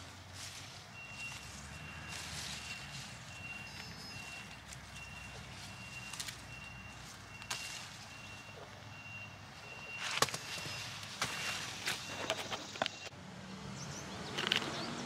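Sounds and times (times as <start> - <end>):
plant leaves rustling: 0.0 - 8.6, 9.8 - 13.1
high steady beeps: 0.9 - 11.0.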